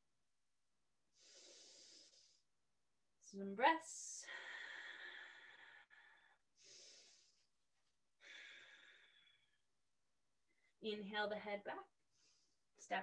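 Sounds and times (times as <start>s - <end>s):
slow deep breaths: 1.1s - 2.6s, 4.1s - 9.6s, 12.0s - 12.7s.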